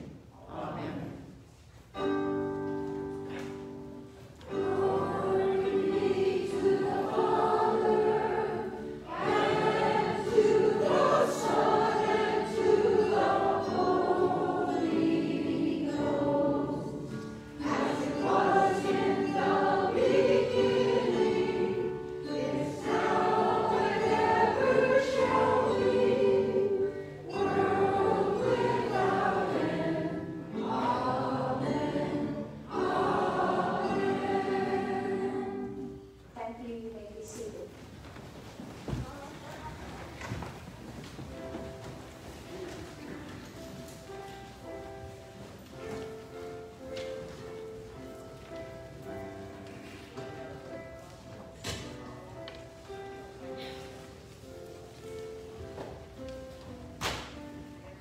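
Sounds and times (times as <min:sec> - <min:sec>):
keyboard accompaniment: 0:01.7 - 0:36.4, 0:40.8 - 0:58.0
choir singing worship song: 0:04.4 - 0:36.2.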